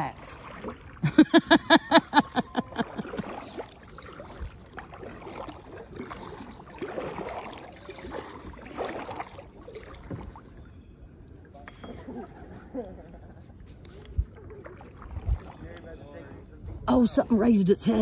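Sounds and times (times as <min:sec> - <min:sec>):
kayak paddling in water: 0:00.0 - 0:18.0
person laughing: 0:01.0 - 0:03.2, 0:11.9 - 0:13.4.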